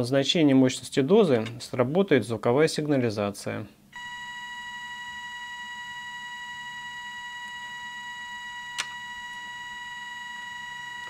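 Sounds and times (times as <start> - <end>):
high-pitched alarm tone: 4.0 - 11.0.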